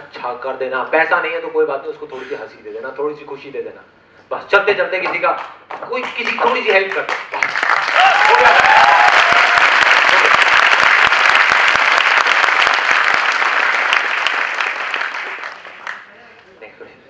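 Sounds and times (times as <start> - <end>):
audience applauding: 5.7 - 16.2.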